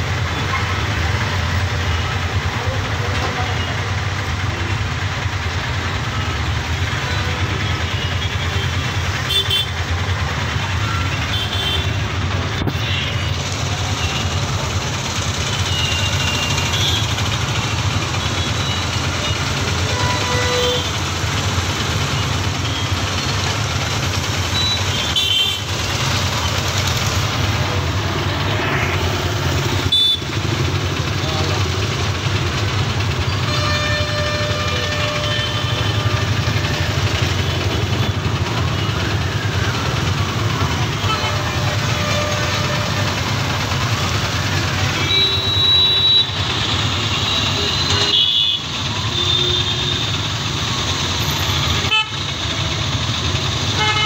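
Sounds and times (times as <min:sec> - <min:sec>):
traffic engine rumble: 0:00.0 - 0:54.0
tyre noise on wet road: 0:00.0 - 0:54.0
vehicle horn toots: 0:19.8 - 0:20.9, 0:29.8 - 0:30.4, 0:33.5 - 0:37.0, 0:44.9 - 0:46.4, 0:47.2 - 0:50.1, 0:53.8 - 0:54.0.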